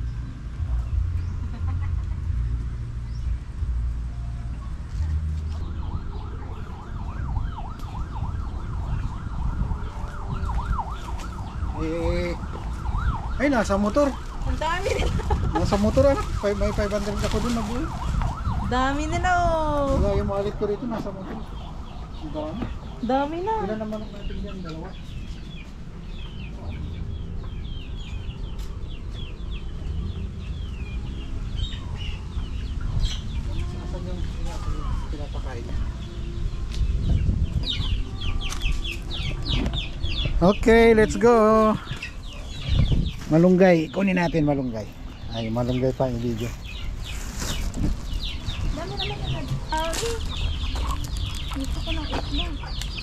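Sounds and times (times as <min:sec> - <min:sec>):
siren wailing: 0:05.5 - 0:23.9
chickens calling: 0:05.5 - 0:53.0.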